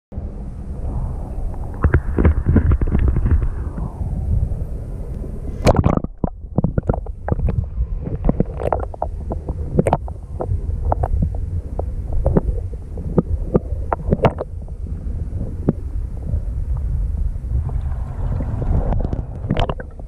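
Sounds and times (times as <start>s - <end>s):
underwater rumble of moving water: 0.1s - 20.0s
clicks and pops: 1.5s - 4.0s, 5.1s - 14.5s, 18.7s - 20.0s.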